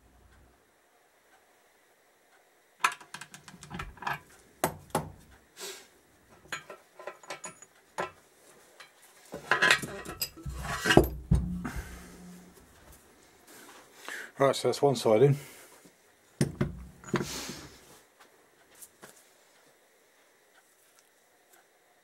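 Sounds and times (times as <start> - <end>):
metal parts clinking and scraping: 6.5 - 8.2, 8.8 - 12.4
heavy knocks on bench: 11.1 - 12.0, 16.4 - 17.2.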